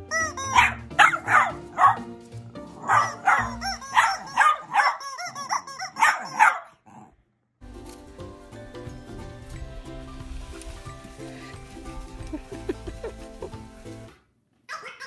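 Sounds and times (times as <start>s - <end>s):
small dog barking: 0.5s - 2.1s, 2.8s - 7.1s.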